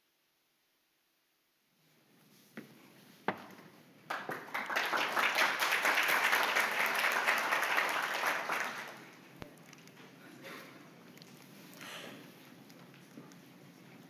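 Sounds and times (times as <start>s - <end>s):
audience applauding: 4.1s - 9.3s.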